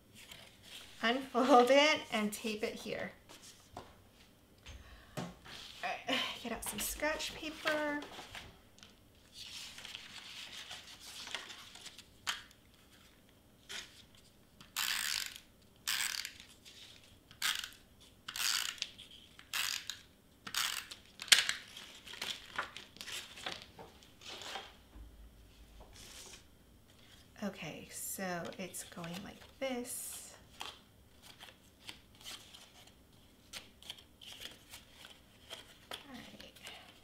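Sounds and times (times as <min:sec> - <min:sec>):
paper rustling: 0:09.2 - 0:12.2, 0:21.2 - 0:24.8.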